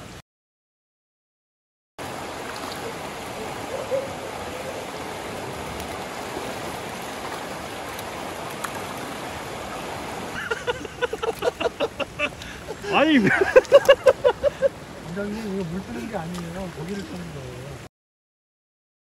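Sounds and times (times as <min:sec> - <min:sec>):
stream running over stones: 0:02.0 - 0:17.9.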